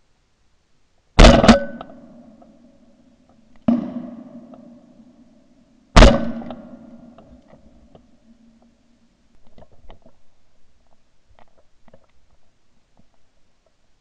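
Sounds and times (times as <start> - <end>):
shotgun shots echoing: 1.2 - 2.4, 3.7 - 5.2, 6.0 - 7.4.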